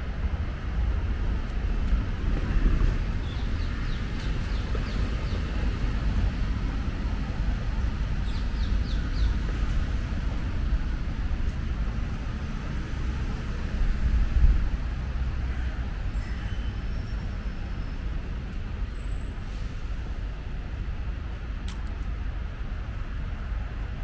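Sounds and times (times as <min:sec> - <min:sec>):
city traffic rumble: 0:00.0 - 0:24.0.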